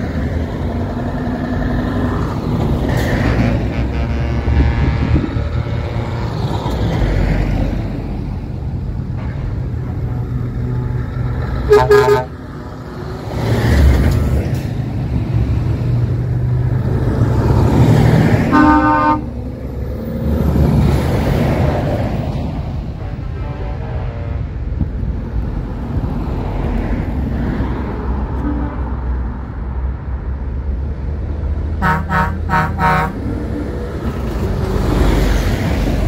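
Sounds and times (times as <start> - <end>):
truck diesel engines passing: 0.0 - 36.0
truck horn blasts: 3.2 - 6.1, 11.7 - 12.4, 18.5 - 19.3, 23.0 - 24.5, 31.8 - 33.2.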